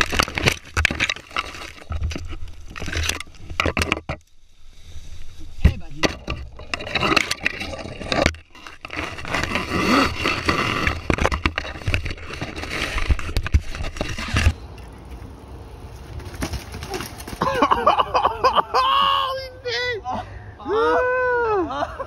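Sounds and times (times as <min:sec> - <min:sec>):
tree branches cracking: 0:00.0 - 0:03.5, 0:12.9 - 0:17.6
leaves scraping: 0:00.0 - 0:17.9.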